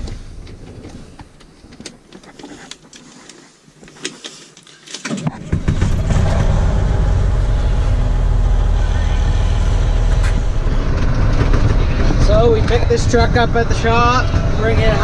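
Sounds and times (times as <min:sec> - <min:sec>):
sharp clicks of controls: 0:00.0 - 0:15.0
diesel engine cranking and starting: 0:05.1 - 0:15.0.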